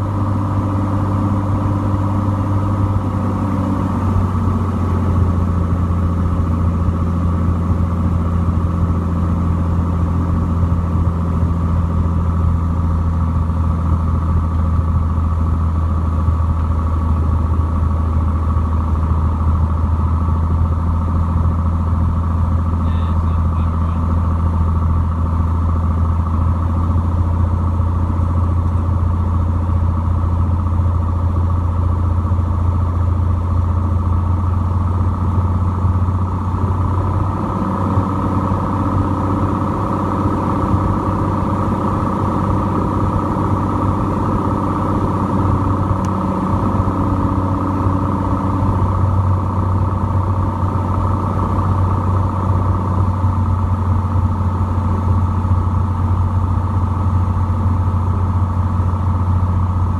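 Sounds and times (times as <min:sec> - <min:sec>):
airplane propeller engine droning: 0:00.0 - 0:59.9.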